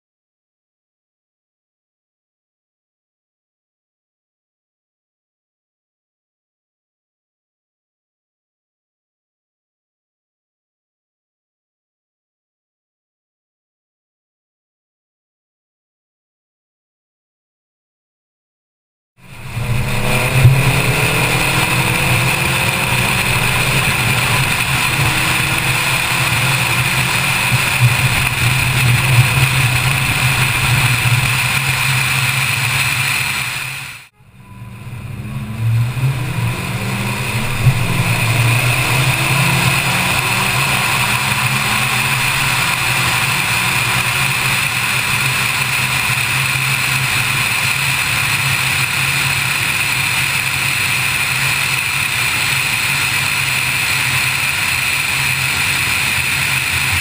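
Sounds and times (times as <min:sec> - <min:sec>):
car engine accelerating: 0:19.2 - 0:57.0
high whine: 0:19.2 - 0:57.0
road and wind noise: 0:19.2 - 0:57.0.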